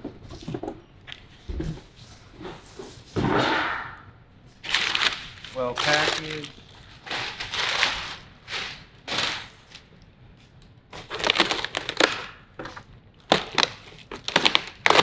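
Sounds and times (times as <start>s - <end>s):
packaging rustling: 4.6s - 9.9s, 10.9s - 15.0s
plastic wrapping crinkling: 4.6s - 10.0s, 10.9s - 15.0s.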